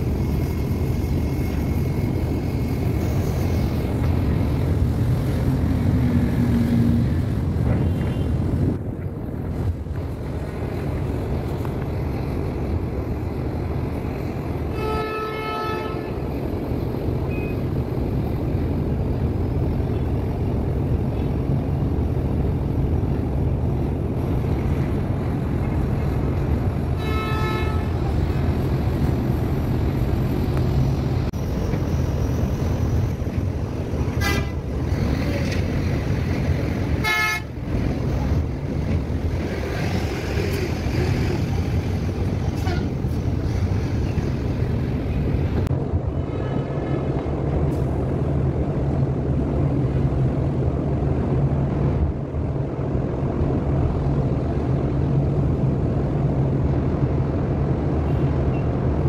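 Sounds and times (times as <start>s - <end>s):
vehicle horns tooting: 37.0s - 37.5s.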